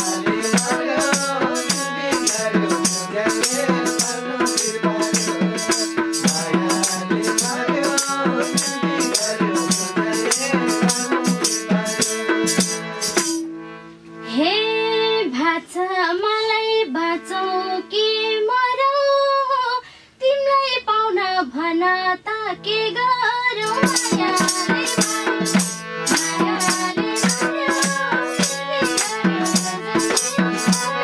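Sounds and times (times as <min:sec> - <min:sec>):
hand drum and tambourine: 0:00.0 - 0:13.5, 0:23.6 - 0:31.0
harmonium: 0:00.0 - 0:19.6, 0:22.0 - 0:31.0
woman singing: 0:14.3 - 0:31.0
hand claps: 0:28.5 - 0:29.2.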